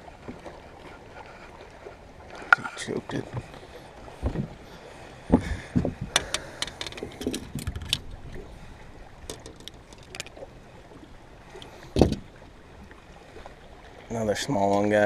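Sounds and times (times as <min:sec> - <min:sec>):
knocks and thumps on boat: 0:02.3 - 0:08.2, 0:11.9 - 0:12.4
light clicks and rattles: 0:06.1 - 0:08.0, 0:09.3 - 0:10.4.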